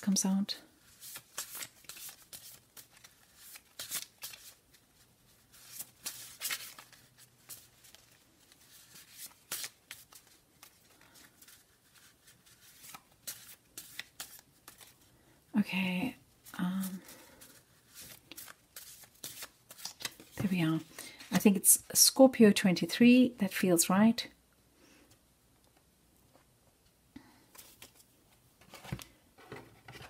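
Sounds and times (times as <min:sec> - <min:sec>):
paper cards shuffling: 0:00.8 - 0:15.1, 0:16.4 - 0:21.6, 0:27.5 - 0:30.0.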